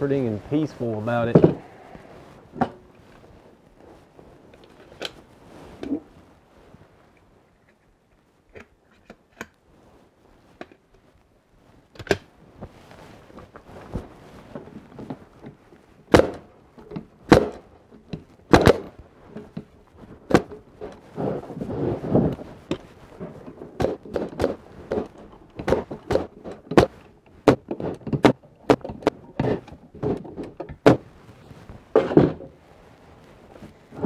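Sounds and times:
knocks of wood: 0:01.3 - 0:01.7, 0:16.1 - 0:16.5, 0:17.3 - 0:19.0, 0:23.7 - 0:31.1, 0:31.9 - 0:32.5.

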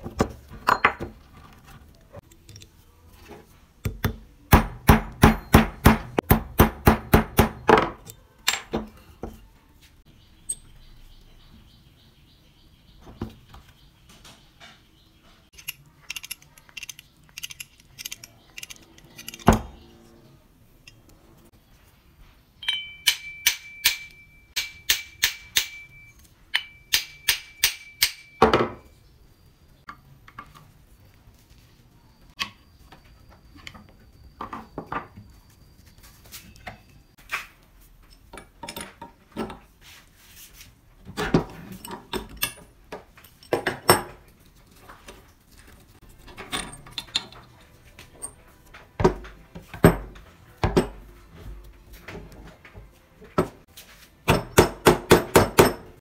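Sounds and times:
tools clinking and knocking: 0:00.0 - 0:09.5, 0:14.1 - 0:19.9, 0:22.6 - 0:28.9, 0:36.4 - 0:39.7, 0:41.0 - 0:56.0
hammer striking metal: 0:03.9 - 0:07.9, 0:22.6 - 0:28.8
socket wrench clicking: 0:15.6 - 0:19.5.

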